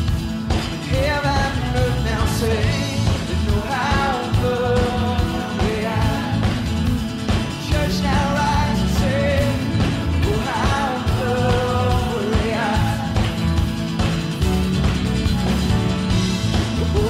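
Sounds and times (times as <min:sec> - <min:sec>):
bass: 0:00.0 - 0:17.0
steady drum beat: 0:00.0 - 0:17.0
person singing lead melody: 0:00.8 - 0:13.9, 0:16.5 - 0:17.0.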